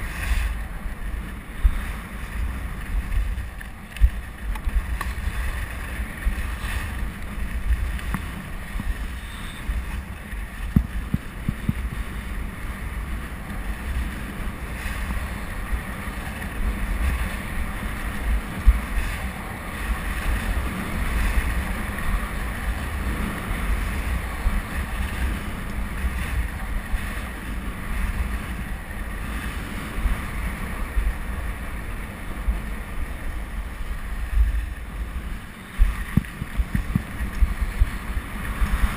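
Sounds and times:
skis scraping over snow: 0.0 - 38.9
wind on microphone: 0.0 - 38.9.

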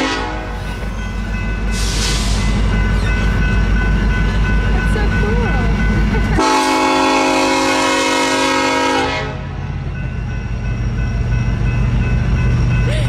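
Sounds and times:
locomotive air horn blast: 0.0 - 0.6, 6.4 - 9.5.

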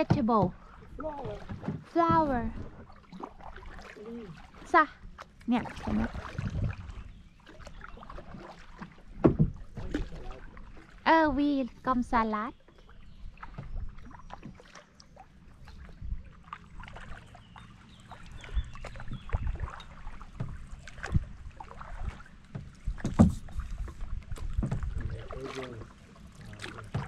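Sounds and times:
paddle splashing in water: 0.0 - 27.0
wind rumble on microphone: 5.9 - 7.2, 15.7 - 16.3, 18.3 - 19.8, 20.4 - 22.0, 22.7 - 25.5.

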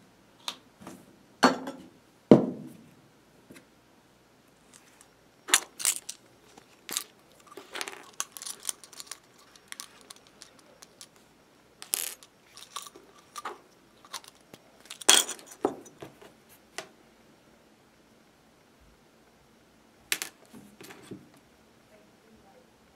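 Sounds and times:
objects handled on wooden table: 4.8 - 11.2, 11.8 - 16.3.

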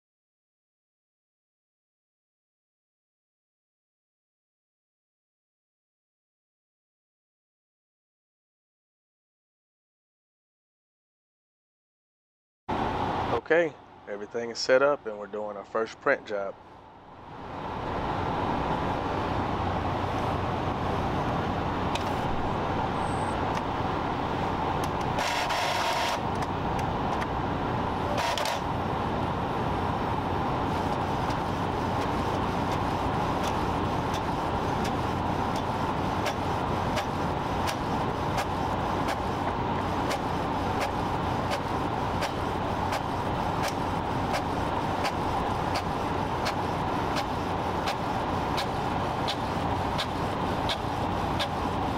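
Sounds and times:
printer rush of noise: 17.4 - 51.9
printer mechanical whirr: 18.7 - 27.3, 27.9 - 51.9.

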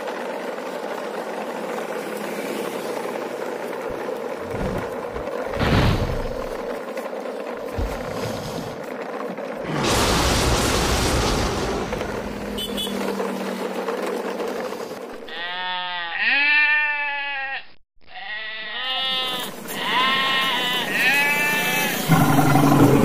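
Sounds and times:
rushing noise: 9.6 - 15.1, 21.9 - 23.0
sheep bleating: 15.2 - 22.2.

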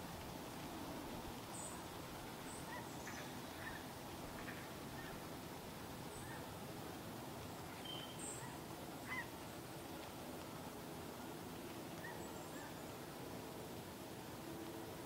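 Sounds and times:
faint steady hiss: 0.0 - 15.0
small birds chirping: 7.4 - 9.3.

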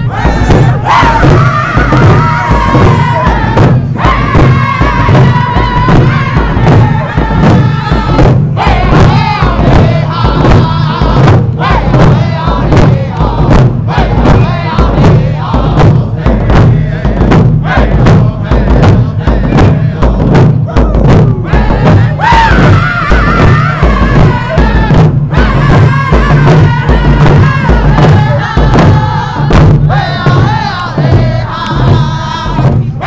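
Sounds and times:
crowd singing: 0.0 - 33.0
hand drum beat: 0.0 - 33.0.

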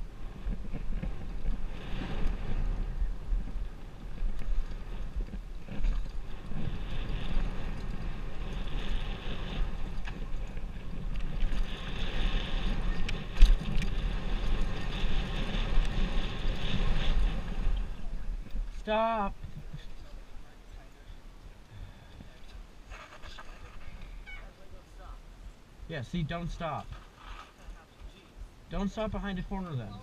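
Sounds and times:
bike tyres rumbling and rattling: 0.0 - 20.3
wind buffeting microphone: 0.0 - 30.0.

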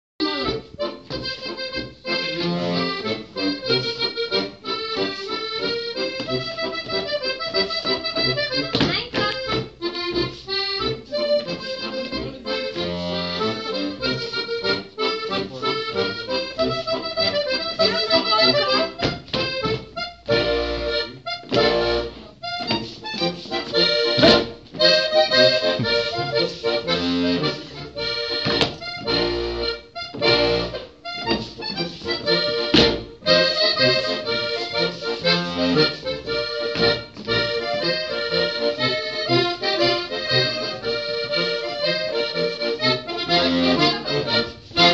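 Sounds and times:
accordion folk dance tune: 0.2 - 44.9
dancers' steps knocking on floor: 5.6 - 10.4, 17.2 - 20.5, 21.4 - 26.6, 27.9 - 35.0, 35.8 - 38.1.

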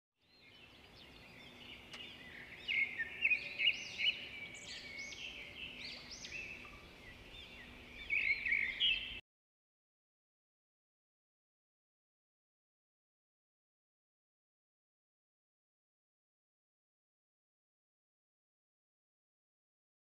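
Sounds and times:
small birds chirping: 0.2 - 9.2.

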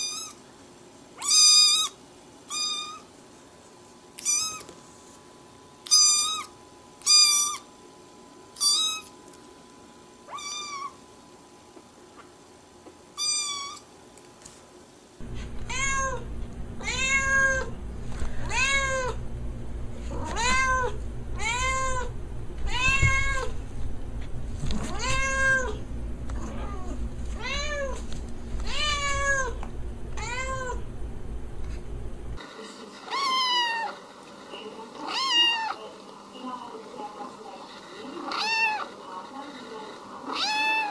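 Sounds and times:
cat meowing: 2.5 - 3.0, 4.2 - 4.7, 10.3 - 11.0, 15.3 - 17.8, 18.4 - 19.2, 20.1 - 23.6, 24.9 - 25.8, 26.4 - 28.0, 28.6 - 29.6, 30.2 - 30.9, 38.3 - 38.9, 40.3 - 40.9
kitten mewing: 15.2 - 19.3, 20.1 - 23.6, 24.8 - 25.8, 26.4 - 28.0, 28.6 - 29.6, 30.2 - 30.9
steady low hum: 15.2 - 32.4.

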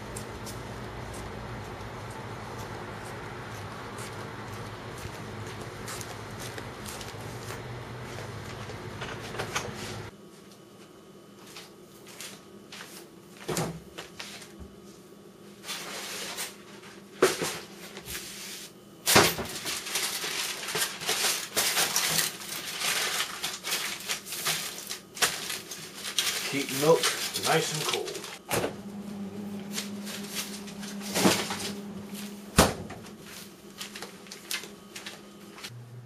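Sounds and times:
aluminium foil crinkling: 19.1 - 28.4, 33.2 - 35.7.

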